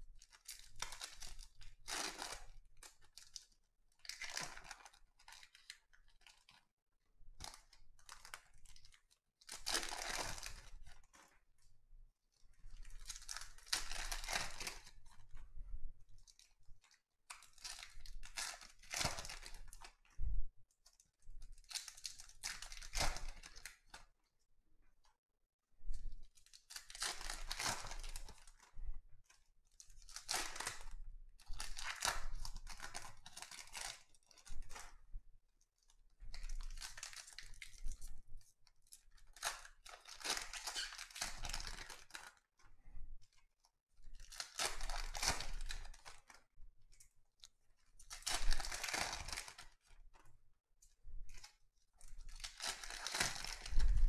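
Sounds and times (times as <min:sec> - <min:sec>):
wrappers torn and crinkled: 0:00.2 - 0:03.4, 0:04.0 - 0:06.6, 0:07.4 - 0:11.2, 0:12.8 - 0:15.0, 0:17.3 - 0:19.9, 0:21.6 - 0:24.0, 0:26.4 - 0:28.7, 0:29.8 - 0:30.9, 0:31.5 - 0:34.9, 0:36.4 - 0:38.0, 0:39.2 - 0:42.4, 0:44.2 - 0:46.4, 0:48.0 - 0:49.9, 0:52.2 - 0:54.0.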